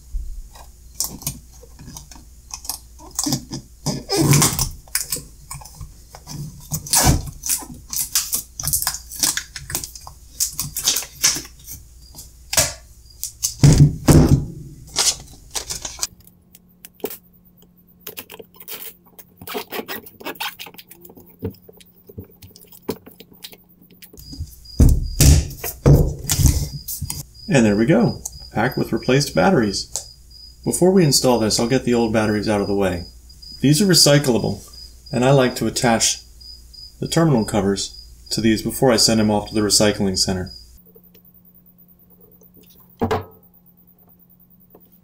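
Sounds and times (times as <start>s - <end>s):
faint steady hum: 0.0s - 45.0s
plastic film crinkling: 4.2s - 12.3s, 14.8s - 17.2s, 18.0s - 24.2s
handling knock: 43.0s - 43.4s.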